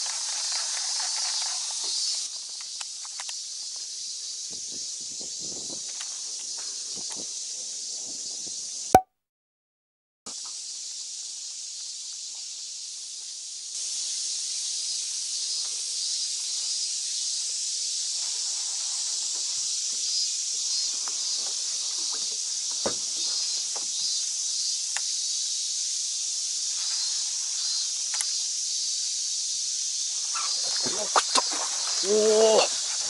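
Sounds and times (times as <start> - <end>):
insects calling: 0.0 - 8.9, 10.3 - 33.0
faint clicks: 28.1 - 28.3.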